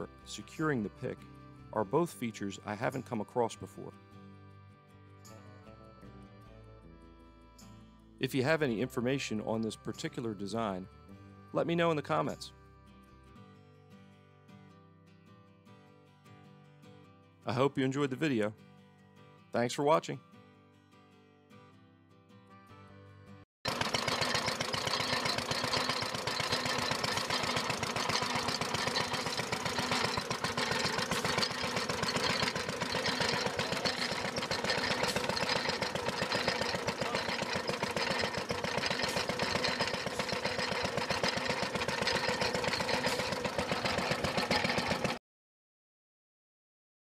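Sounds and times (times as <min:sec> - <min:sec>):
engine knocking rhythmically: 0:23.7 - 0:45.2.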